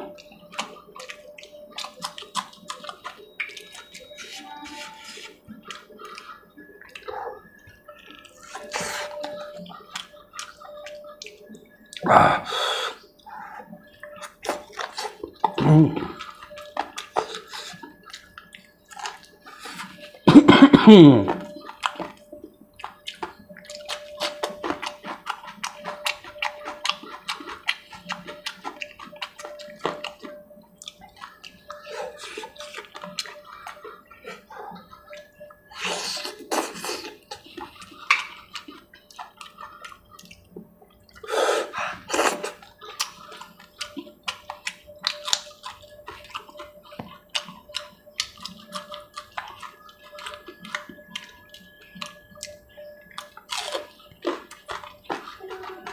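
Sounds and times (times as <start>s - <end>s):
wet chewing and lip-smacking: 0.0s - 55.9s
slurping: 0.2s - 55.9s.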